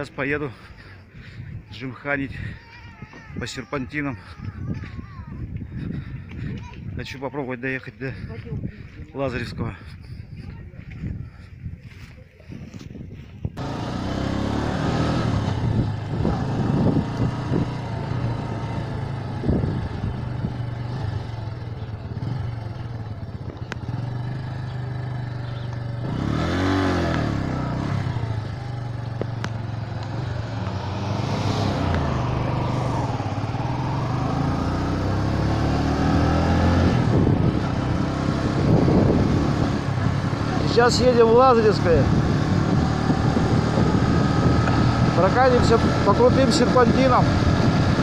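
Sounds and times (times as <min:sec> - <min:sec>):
motorcycle engine running: 0:13.2 - 0:48.0.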